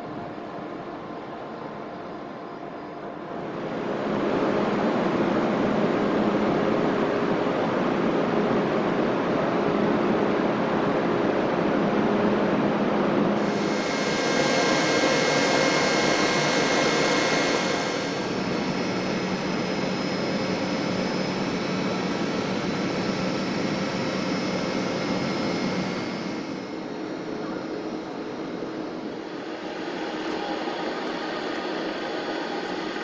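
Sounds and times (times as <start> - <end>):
locomotive blowers rushing hum: 13.4 - 19.6
higher whine and hiss: 13.4 - 33.0.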